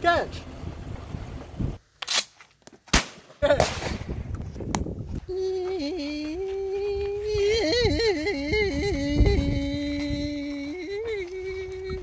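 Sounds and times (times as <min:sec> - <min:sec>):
person humming: 0:05.2 - 0:12.0.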